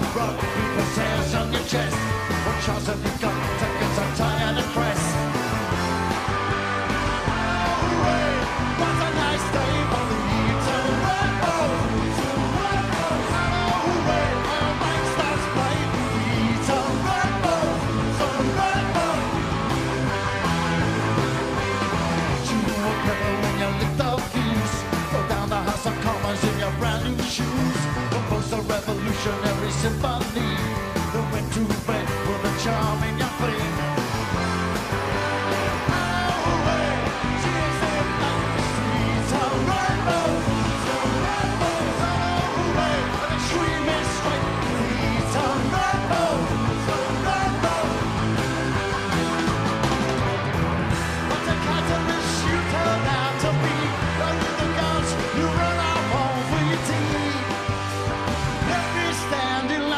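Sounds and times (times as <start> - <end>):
bass guitar: 0.0 - 59.9
drums with steady beat: 0.0 - 59.9
electric guitars: 0.0 - 59.9
rock band playing: 0.0 - 59.9.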